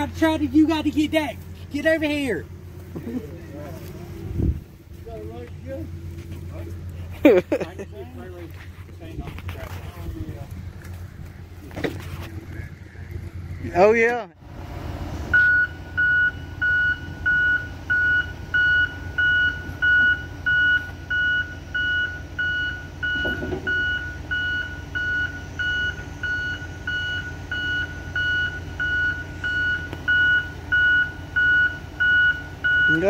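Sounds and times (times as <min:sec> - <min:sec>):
diesel engine rumble: 0:00.0 - 0:33.0
backup alarm beeping: 0:15.3 - 0:33.0.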